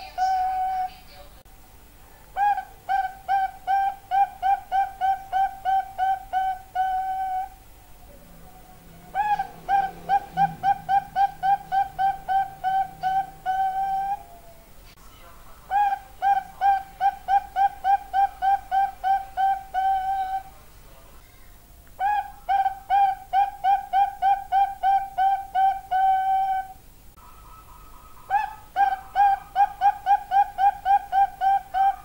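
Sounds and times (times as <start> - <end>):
dove cooing: 0.0 - 1.2, 2.2 - 14.9, 15.7 - 20.6, 22.0 - 32.0.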